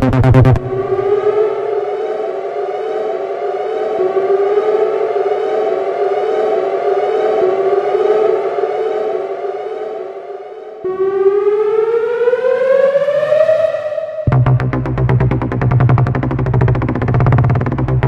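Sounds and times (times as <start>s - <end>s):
pulsing electronic beat: 0.0s - 9.9s, 14.3s - 18.0s
siren wail: 0.0s - 18.0s.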